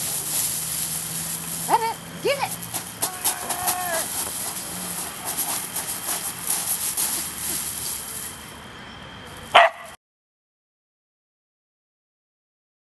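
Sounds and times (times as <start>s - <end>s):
dog digging in gravel: 0.0s - 8.5s
steps on gravel: 0.0s - 8.5s.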